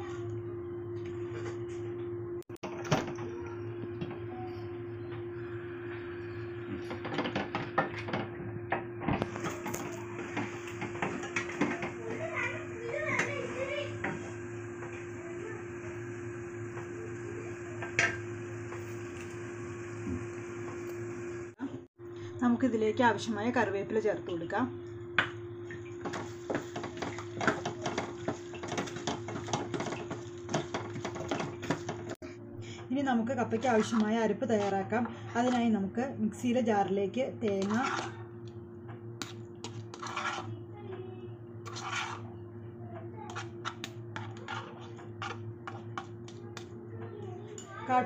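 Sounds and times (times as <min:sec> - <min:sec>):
steady low hum: 0:00.0 - 0:48.0
wooden spatula scraping a pan: 0:33.6 - 0:35.8, 0:37.5 - 0:38.2, 0:39.6 - 0:40.6, 0:41.6 - 0:42.4, 0:43.3 - 0:46.4.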